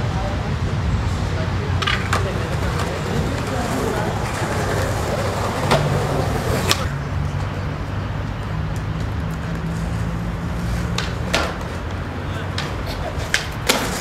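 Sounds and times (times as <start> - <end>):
skateboard rolling on pavement: 0.0 - 14.0
street traffic hum: 0.0 - 14.0
skateboard clacks: 1.7 - 7.4, 8.7 - 14.0.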